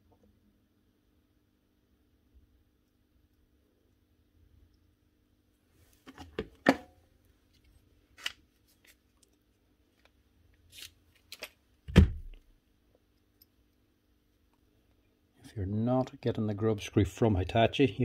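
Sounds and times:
dull thump: 11.9s - 12.4s.

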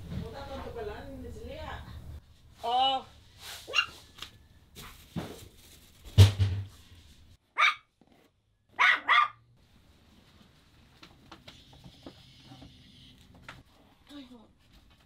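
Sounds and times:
dog barking: 3.7s - 4.0s, 7.6s - 7.9s, 8.8s - 9.4s.

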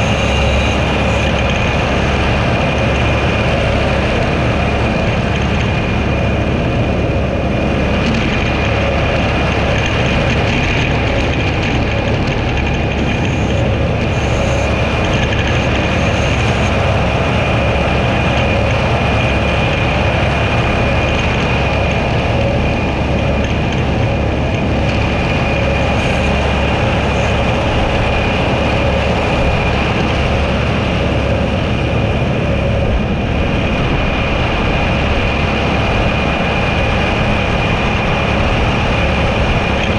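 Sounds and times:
mower high-pitched whine: 0.0s - 39.9s
tractor engine drone: 0.0s - 39.9s.

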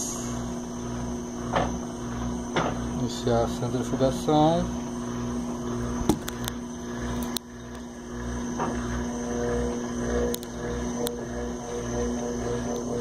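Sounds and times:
washing machine spinning: 0.0s - 13.0s.

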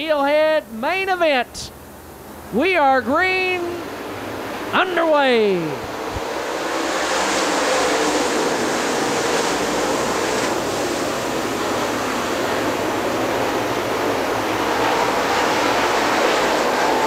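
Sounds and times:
race car engines at full throttle: 5.7s - 17.0s.

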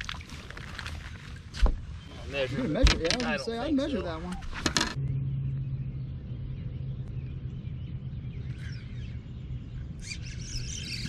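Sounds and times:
low hum: 4.4s - 11.0s
low rumble: 4.8s - 10.6s.

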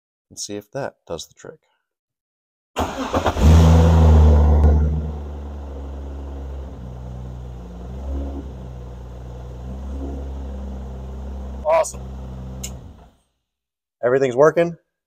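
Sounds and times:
car engine starting and idling: 2.8s - 13.2s.

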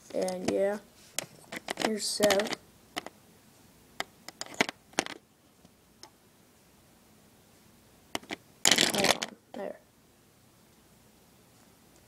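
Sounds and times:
plastic toy handling clicks: 1.6s - 3.1s.

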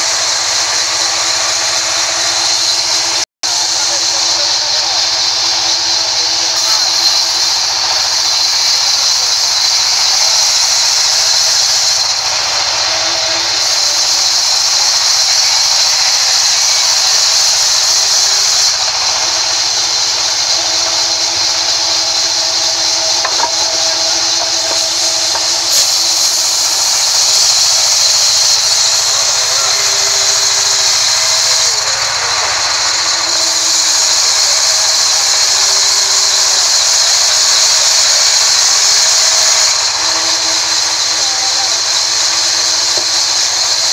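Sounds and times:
band saw cutting through log: 0.0s - 43.9s.

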